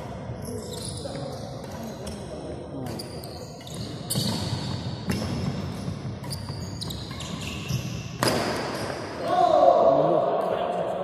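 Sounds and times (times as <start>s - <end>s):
rackets hitting shuttlecock: 3.8s - 7.4s, 8.2s - 9.1s.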